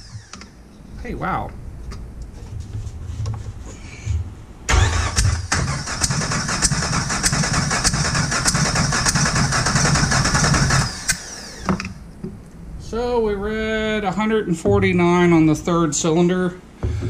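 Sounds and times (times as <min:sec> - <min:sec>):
starter motor cranking engine: 0:00.0 - 0:00.5, 0:04.7 - 0:12.0.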